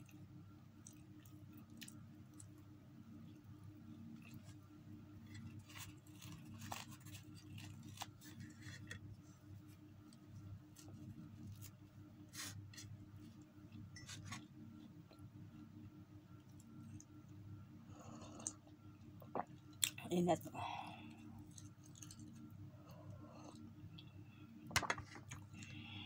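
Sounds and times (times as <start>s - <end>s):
chewing clicks and crackles: 0.8s - 2.6s, 21.4s - 24.1s
flatbread being torn: 5.2s - 9.0s.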